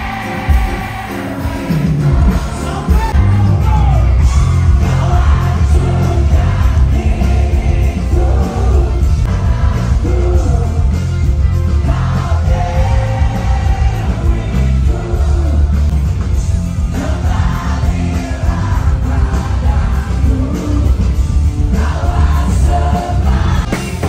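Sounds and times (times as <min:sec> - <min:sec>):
live rock band: 0:00.0 - 0:24.0.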